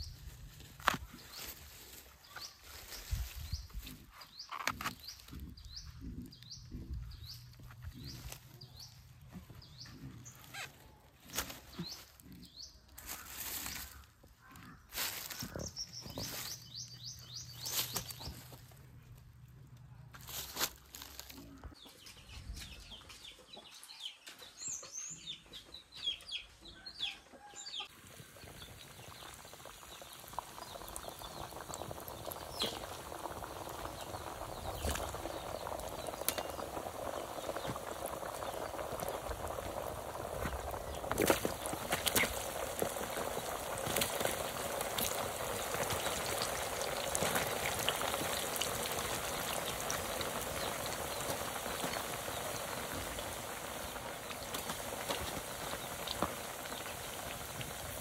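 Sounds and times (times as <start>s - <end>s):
sharp pops and crackles: 0.6s - 1.4s, 28.6s - 58.0s
oil sizzling in a pan: 28.4s - 58.0s.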